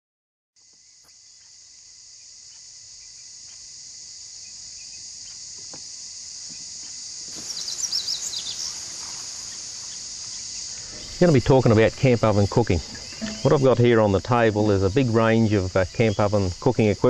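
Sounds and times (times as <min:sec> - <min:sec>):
high-pitched insect chorus: 0:00.6 - 0:17.0
bird chirps: 0:06.4 - 0:14.8.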